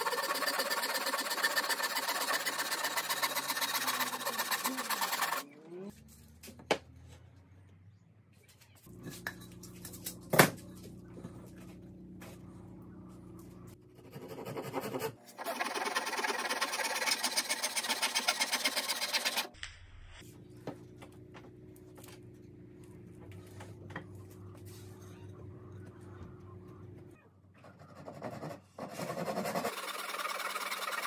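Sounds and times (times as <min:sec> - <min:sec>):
handsaw cutting wood: 0:00.0 - 0:05.4, 0:14.0 - 0:19.5, 0:28.0 - 0:31.0.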